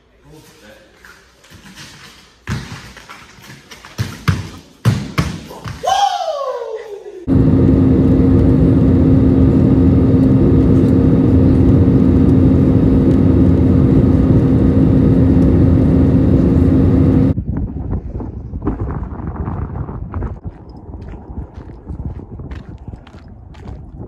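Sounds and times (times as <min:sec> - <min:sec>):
aircraft cabin roar: 0:07.3 - 0:17.4.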